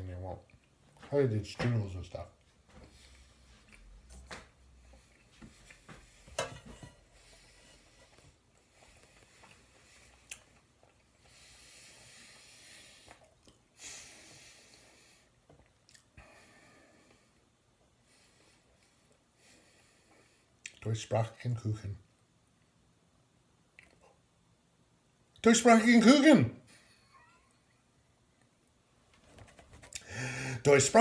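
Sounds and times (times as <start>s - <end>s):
person chewing cake: 7.3s - 12.1s
breathing through nose: 30.0s - 30.6s.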